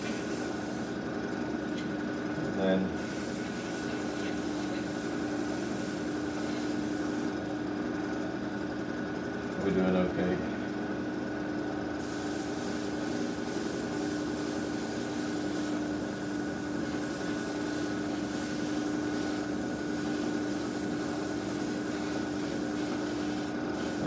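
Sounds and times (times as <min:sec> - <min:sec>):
airbrush hissing in spurts: 0:00.0 - 0:01.0, 0:03.0 - 0:07.3, 0:12.0 - 0:24.0
steady motor hum: 0:00.0 - 0:24.0.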